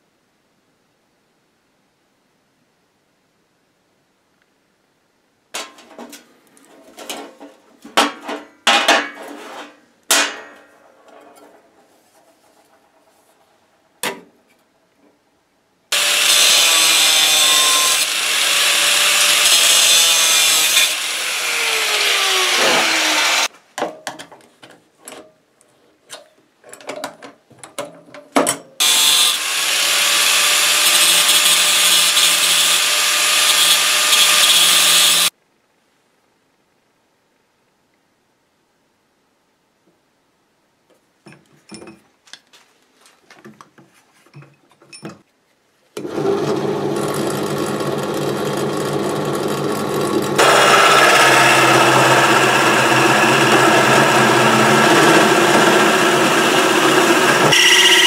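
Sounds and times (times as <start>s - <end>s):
grinder cutting steel rod: 15.9s - 23.5s, 28.8s - 35.3s, 46.0s - 58.0s
grinder spinning down whine: 21.1s - 23.5s, 28.8s - 35.3s, 46.0s - 58.0s.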